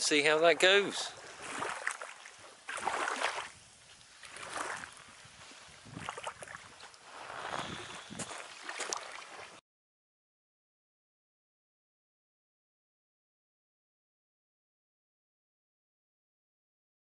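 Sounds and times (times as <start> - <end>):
small waves on shingle beach: 0.2 - 9.6.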